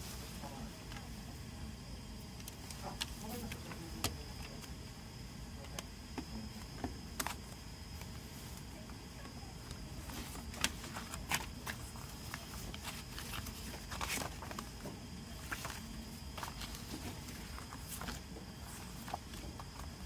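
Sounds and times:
low background noise: 0.0 - 20.0
paper rustle: 7.2 - 20.0.

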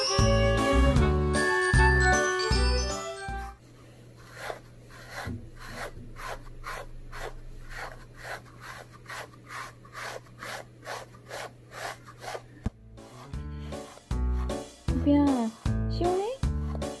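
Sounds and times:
brush rasping through dog fur: 4.2 - 17.0.

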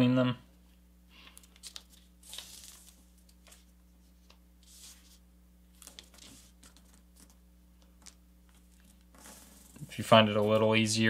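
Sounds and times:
low steady hum: 0.0 - 11.0
paper rustling: 1.2 - 10.7.

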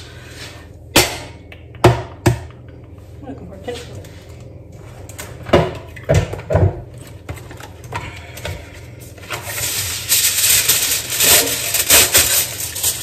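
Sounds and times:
foil crinkling: 7.0 - 13.0.

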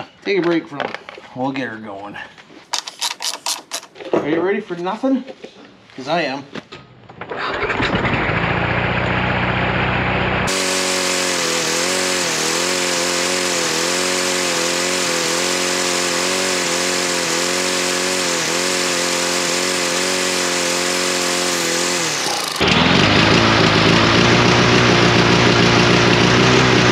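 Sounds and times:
lawnmower engine running fast: 7.3 - 26.9.

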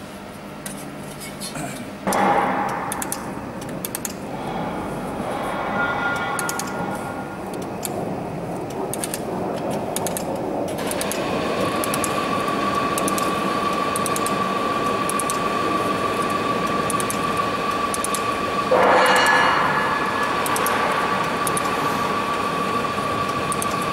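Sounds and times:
steady whine: 2.0 - 23.9
laser firing sharp ticks: 2.1 - 4.2, 13.0 - 13.3, 15.1 - 15.4, 17.9 - 18.2
welding machine running: 6.2 - 23.9.

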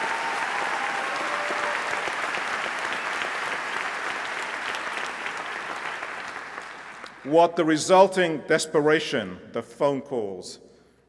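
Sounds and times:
large audience applauding: 0.0 - 7.3.

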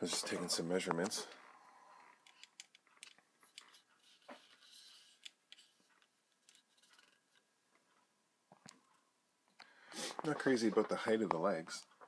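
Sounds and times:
faint clicks and taps of handling: 2.2 - 12.0.

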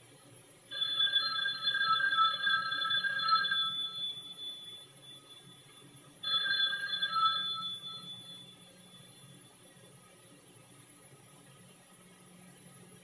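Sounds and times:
telephone bell ringing: 0.7 - 9.3.

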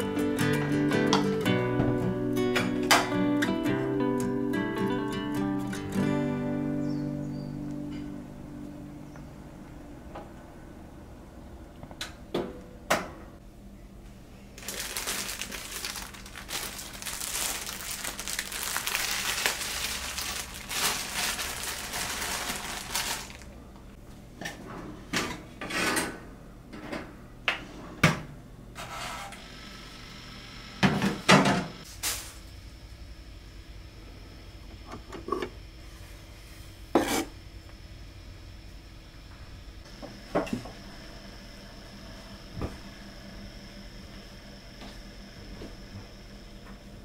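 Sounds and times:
plastic bag rustling and crinkling: 14.6 - 23.6.

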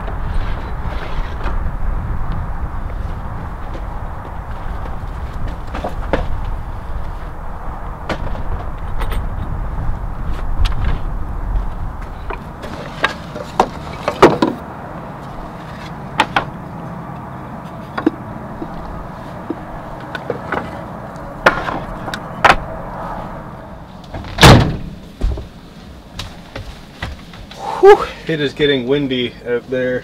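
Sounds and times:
wooden boards knocking: 12.3 - 14.6, 16.2 - 16.6, 21.4 - 22.7
loud wooden thump: 21.4 - 22.7, 24.1 - 25.5.

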